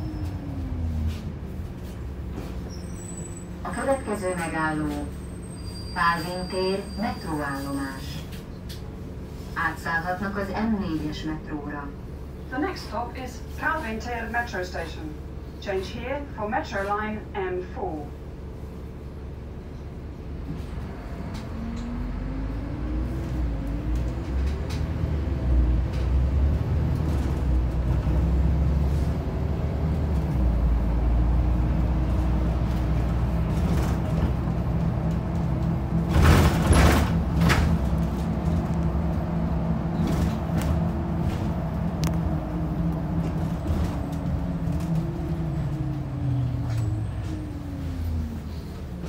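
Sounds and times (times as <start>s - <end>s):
bus engine running: 0.0s - 49.0s
loud knocks and rattles: 36.0s - 37.9s.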